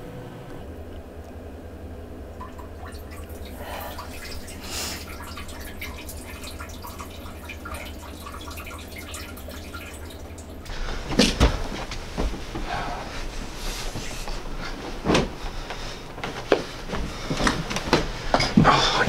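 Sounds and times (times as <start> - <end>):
steady low hum: 0.0 - 19.0
water dripping and trickling: 2.3 - 10.7.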